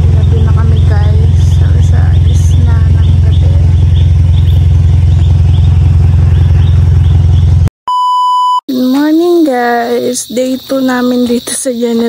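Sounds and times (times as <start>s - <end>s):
engine running loud: 0.0s - 7.7s
electronic beep: 7.9s - 8.6s.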